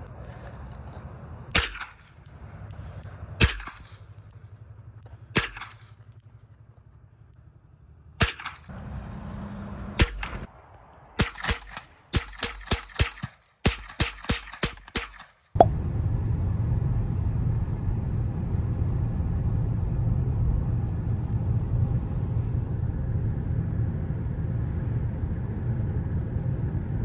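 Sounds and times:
rifle gunshots: 1.5s - 2.3s, 3.4s - 4.2s, 5.3s - 6.1s, 8.2s - 8.7s, 10.0s - 10.5s, 11.2s - 15.4s.

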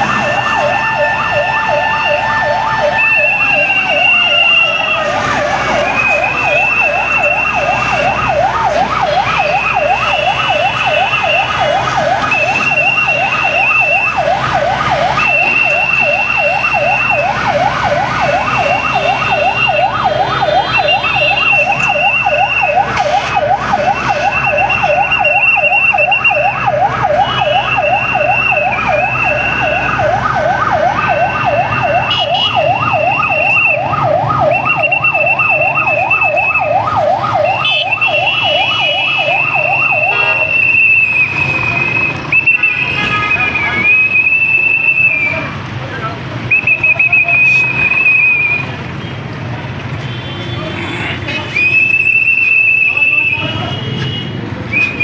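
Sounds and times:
siren on fast yelp: 0.0s - 45.6s, 46.4s - 48.8s, 51.6s - 53.4s.

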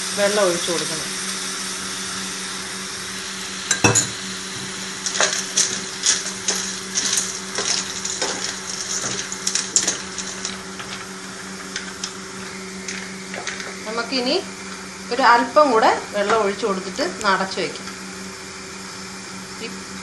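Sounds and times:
faint sizzle: 0.0s - 20.0s.

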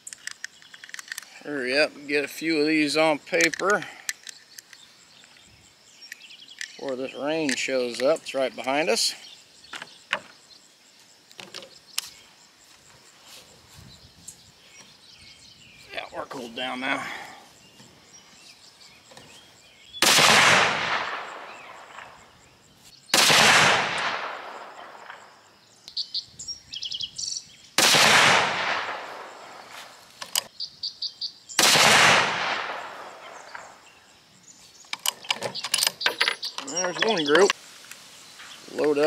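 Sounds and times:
rifle bolt clicks: 0.1s - 1.3s, 3.4s - 4.8s
rifle shots: 20.0s - 22.2s, 23.1s - 25.2s, 27.8s - 29.7s, 31.6s - 33.8s.

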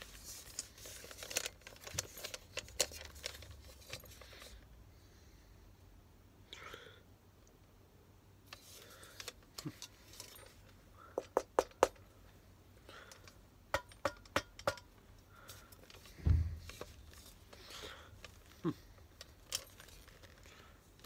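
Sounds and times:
metal helmet clicks and clinks: 0.4s - 4.5s, 9.1s - 12.1s, 13.0s - 15.0s, 15.7s - 21.0s
dull thump: 16.2s - 17.0s.

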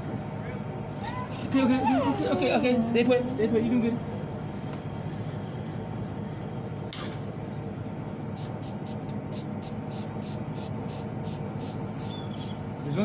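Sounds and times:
spray bottle squirting: 8.4s - 12.6s.

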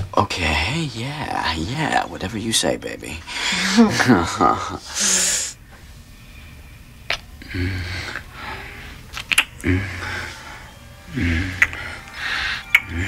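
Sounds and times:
heavy breathing: 3.2s - 6.1s, 7.4s - 13.0s
soft hummed moans: 3.4s - 13.0s
wet lip-smacking clicks: 7.1s - 7.3s, 9.1s - 9.6s, 11.6s - 13.0s.

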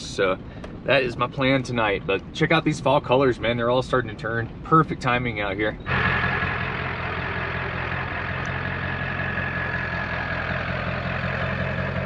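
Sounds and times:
diesel engine idling: 5.6s - 12.0s.

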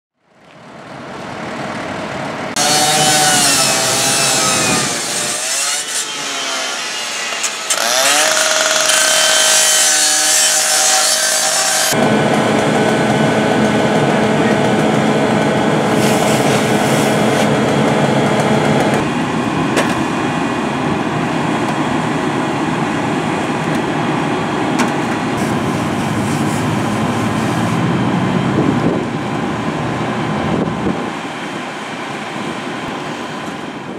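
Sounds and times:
pump engine droning: 11.4s - 33.9s
fire engine siren wailing: 11.9s - 19.5s, 25.4s - 33.9s
fire hose spraying water: 15.8s - 17.5s.

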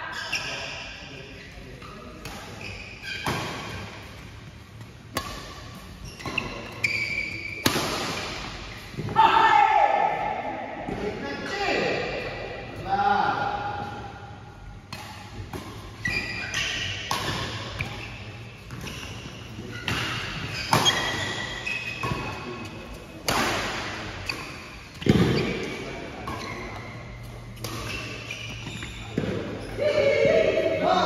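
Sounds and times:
court shoes squeaking: 0.0s - 9.2s, 14.6s - 30.6s
badminton rackets striking shuttlecock: 7.5s - 8.6s, 14.9s - 18.1s.

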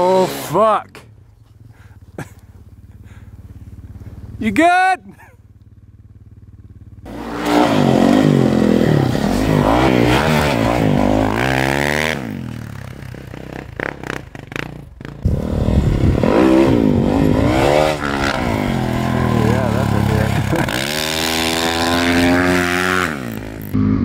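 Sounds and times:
snowbike engine revving: 0.0s - 0.8s, 1.6s - 24.0s.

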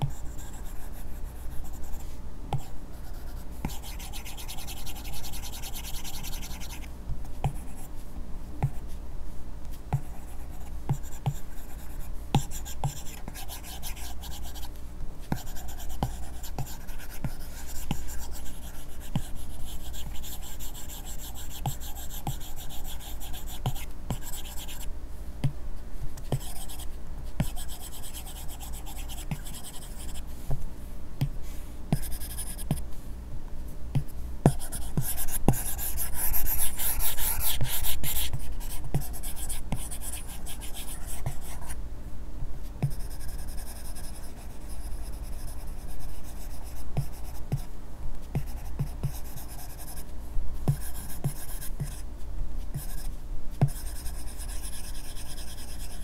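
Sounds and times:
stylus scratching on screen: 3.1s - 6.9s.

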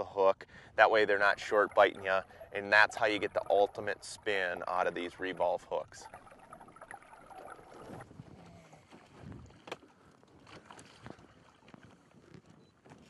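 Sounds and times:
water noise: 0.8s - 12.2s.

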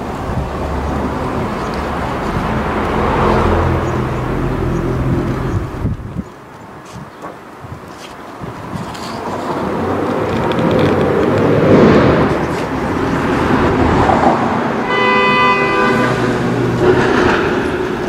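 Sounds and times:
vehicle passing rumble: 0.0s - 6.3s, 8.5s - 18.0s
vehicle horn: 14.8s - 16.6s.

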